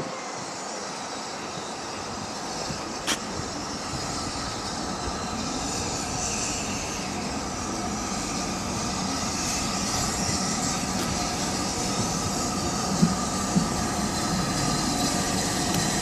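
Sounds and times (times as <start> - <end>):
steam locomotive running: 0.0 - 16.0.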